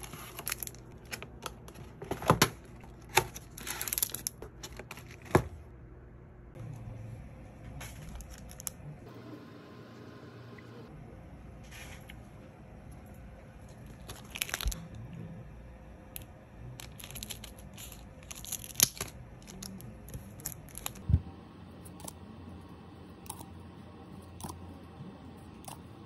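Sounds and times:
foil wrapper crinkling: 0:00.0 - 0:01.8, 0:02.9 - 0:05.2, 0:13.7 - 0:14.8, 0:16.8 - 0:21.0.

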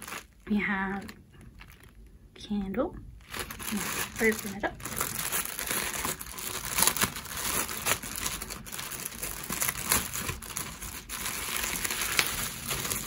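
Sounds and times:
plastic bag crinkling: 0:00.0 - 0:02.2, 0:03.2 - 0:13.0.

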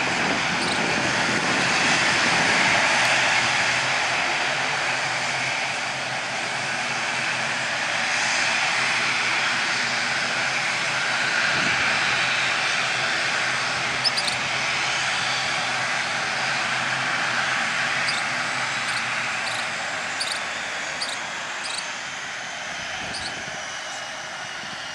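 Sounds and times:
turboprop engines and propellers: 0:00.0 - 0:24.9.

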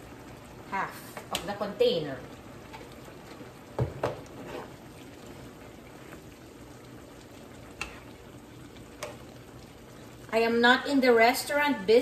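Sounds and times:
food bubbling in a pan: 0:00.0 - 0:12.0
spoon knocking against pan: 0:03.8 - 0:04.2.

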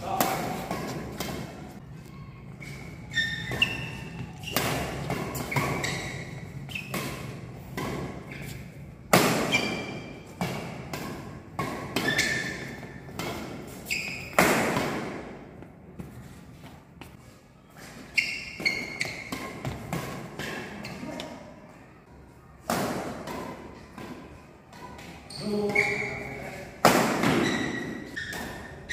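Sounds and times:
rackets hitting shuttlecock: 0:00.0 - 0:15.7, 0:26.7 - 0:28.9
shoes squeaking on court: 0:00.4 - 0:15.0, 0:16.0 - 0:21.5, 0:24.8 - 0:28.9.

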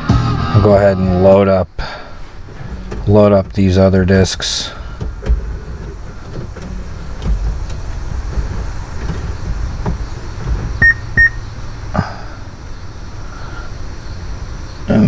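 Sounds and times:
low steady rumble: 0:00.0 - 0:15.0
short high beeps: 0:10.8 - 0:11.4.

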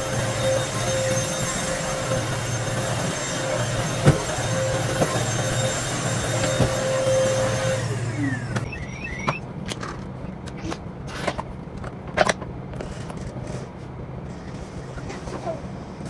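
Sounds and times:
stick vacuum cleaner running: 0:00.0 - 0:09.4.

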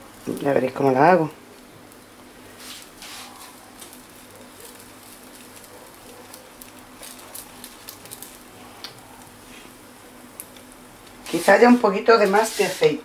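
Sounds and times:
batter sizzling in a pan: 0:00.0 - 0:13.0.

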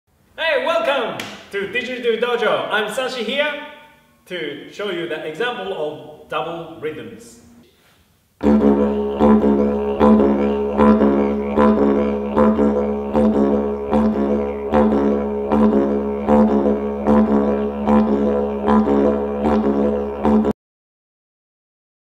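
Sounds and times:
didgeridoo drone: 0:08.4 - 0:20.5.

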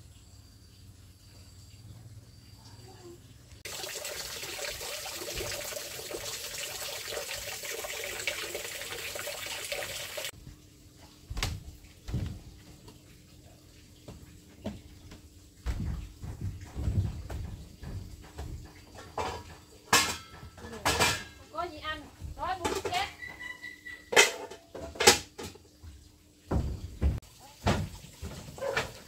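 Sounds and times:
water running from a tap: 0:03.6 - 0:29.0
dull knocks: 0:26.5 - 0:27.9.

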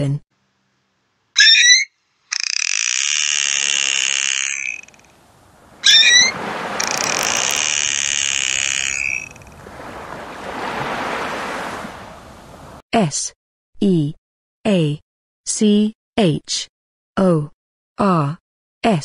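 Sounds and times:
dolphin rising whistle: 0:01.4 - 0:01.9, 0:05.7 - 0:12.2
dolphin buzzing squeals: 0:01.4 - 0:05.1, 0:05.8 - 0:11.4
soft rushing noise: 0:04.9 - 0:12.8.

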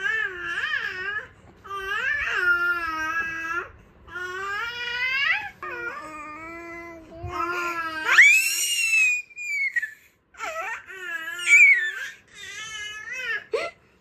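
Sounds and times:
baby squealing and crying: 0:07.9 - 0:13.4.

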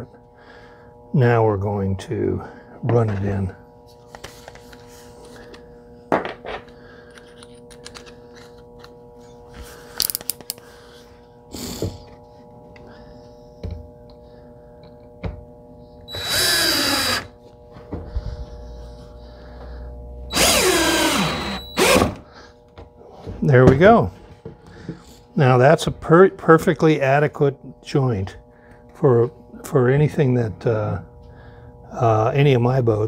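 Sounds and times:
cordless drill driving screw: 0:16.1 - 0:17.3, 0:20.3 - 0:22.2.

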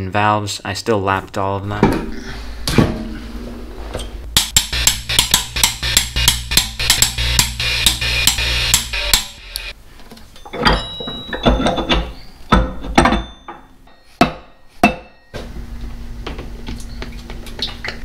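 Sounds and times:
hammer striking metal: 0:04.3 - 0:09.7, 0:11.5 - 0:15.3.

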